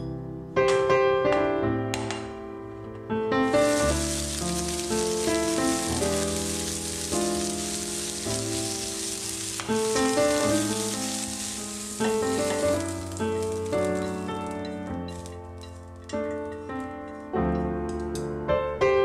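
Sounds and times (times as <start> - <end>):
background music: 0.0 - 19.0
peppers sizzling in a frying pan: 3.4 - 17.3.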